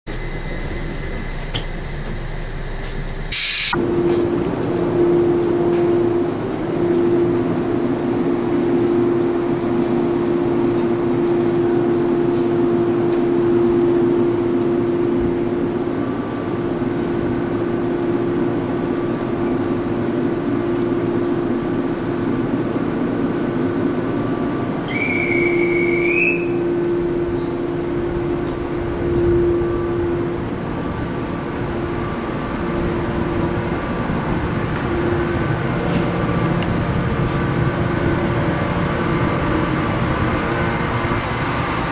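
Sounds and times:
electric train humming: 0:00.1 - 0:41.9
train wheels and motors rumbling: 0:00.1 - 0:41.9
short high whistle: 0:24.9 - 0:26.6.

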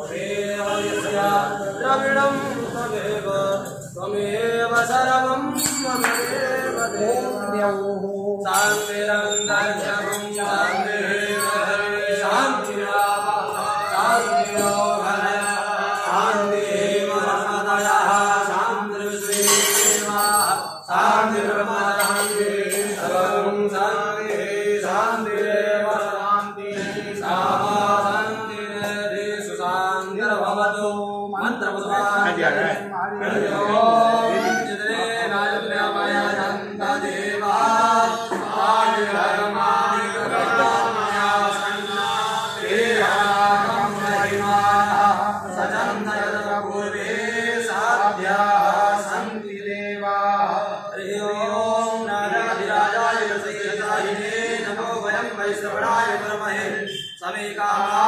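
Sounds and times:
voices chanting a mantra: 0:00.0 - 0:58.0.

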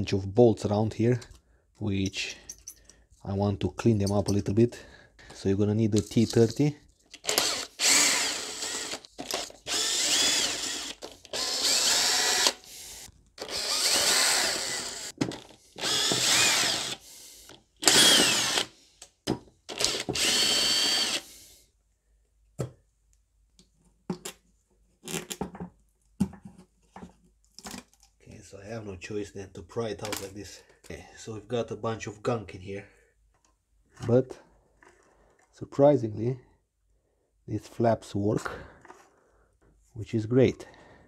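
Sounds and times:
cordless drill motor: 0:07.2 - 0:18.8, 0:19.7 - 0:21.4.

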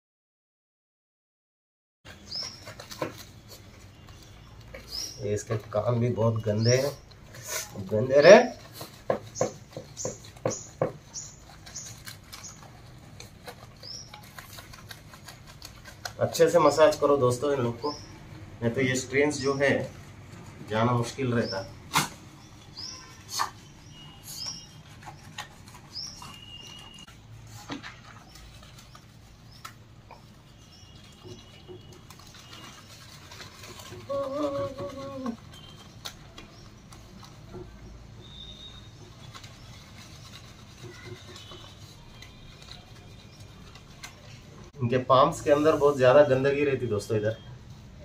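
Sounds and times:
birds chirping: 0:02.1 - 0:47.7
thin high whistles: 0:21.9 - 0:27.2, 0:38.2 - 0:43.8.

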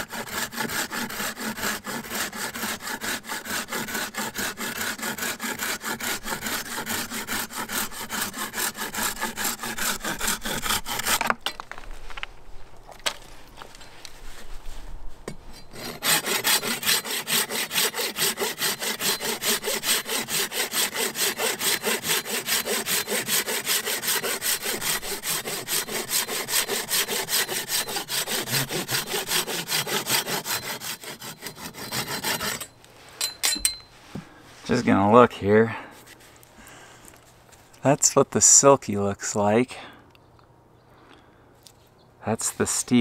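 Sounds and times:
hand saw cutting branch: 0:00.0 - 0:11.5, 0:15.6 - 0:32.7.

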